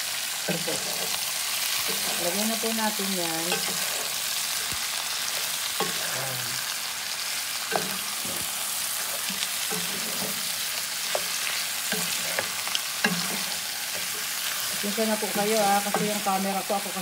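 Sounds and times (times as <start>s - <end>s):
chicken sizzling in hot oil: 0.0s - 17.0s
spatula scraping a pan: 0.5s - 6.6s, 7.2s - 16.9s.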